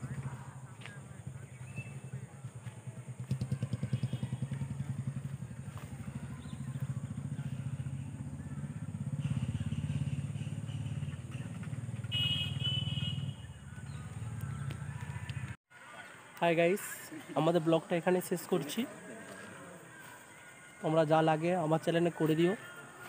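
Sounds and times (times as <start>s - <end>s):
motorcycle engine running: 0.0s - 15.6s.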